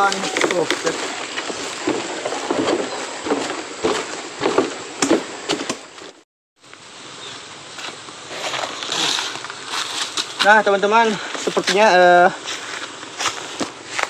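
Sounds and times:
footsteps on a bridge: 0.0s - 6.2s
steady hiss: 0.0s - 14.0s.

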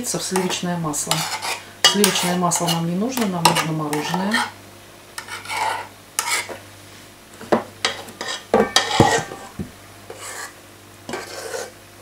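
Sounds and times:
metal spoon scraping a steel bowl: 1.1s - 2.8s, 5.2s - 6.5s, 7.8s - 9.5s, 10.1s - 11.7s.

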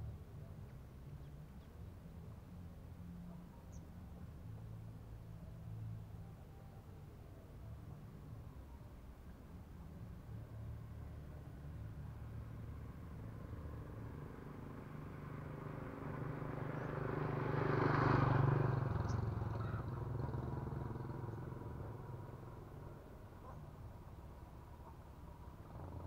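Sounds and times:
motorbike engine passing: 14.0s - 23.0s.

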